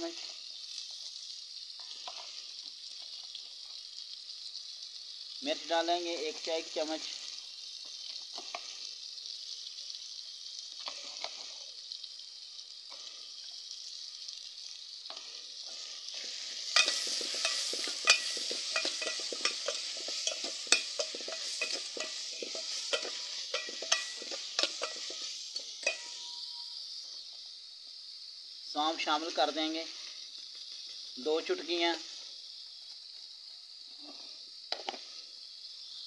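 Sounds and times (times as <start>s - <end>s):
food sizzling in a pot: 0.0s - 36.0s
metal ladle scraping a pot: 16.7s - 26.4s.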